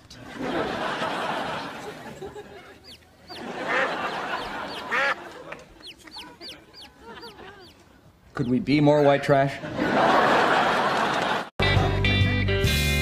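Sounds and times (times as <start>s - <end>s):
duck quacking: 1.3s - 7.8s
chick peeping: 1.5s - 9.2s.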